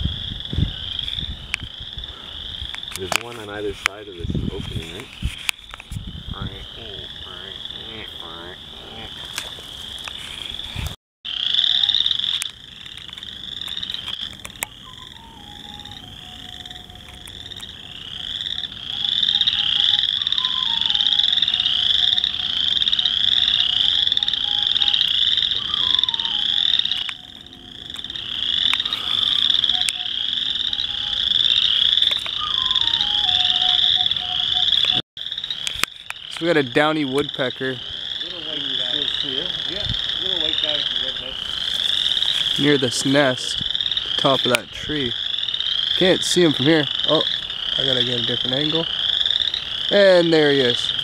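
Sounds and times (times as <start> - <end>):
chorus of frogs trilling: 0.0 - 51.0
faint falling whistle: 14.8 - 17.2, 25.6 - 26.5, 32.2 - 35.0.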